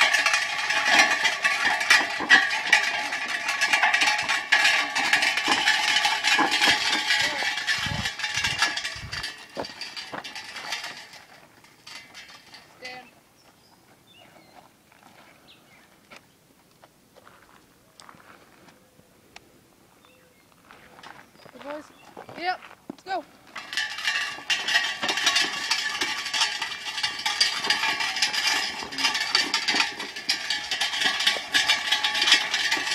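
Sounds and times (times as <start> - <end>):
cart rattling and clattering: 0.0 - 13.1, 23.1 - 32.9
cowbells clanking: 0.0 - 13.1, 23.5 - 32.9.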